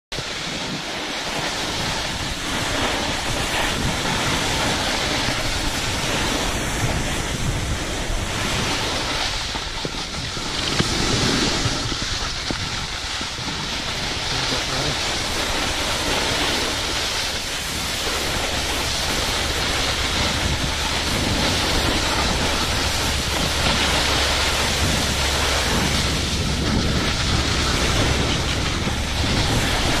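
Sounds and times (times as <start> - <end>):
skis sliding over packed snow: 0.2 - 30.0
wind rushing over microphone: 0.2 - 30.0.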